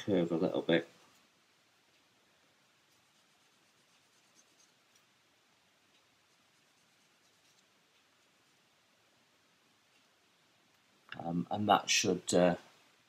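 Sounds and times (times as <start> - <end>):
light ticks: 1.8 - 2.2, 2.8 - 8.8
sanding plastic by hand: 2.9 - 5.0.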